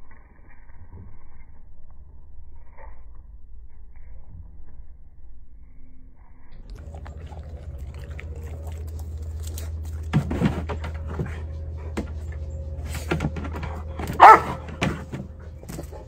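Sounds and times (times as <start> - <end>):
steady low hum: 0.0 - 16.0
dog barking: 14.0 - 15.0.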